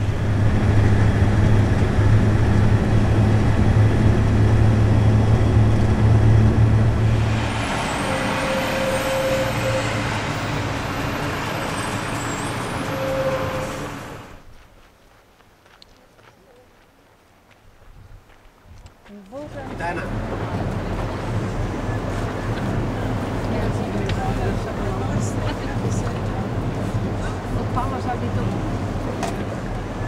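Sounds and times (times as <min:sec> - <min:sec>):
low engine hum: 0:00.0 - 0:11.6, 0:19.3 - 0:30.0
street traffic: 0:00.0 - 0:30.0
short tone: 0:07.8 - 0:10.2, 0:11.7 - 0:14.0.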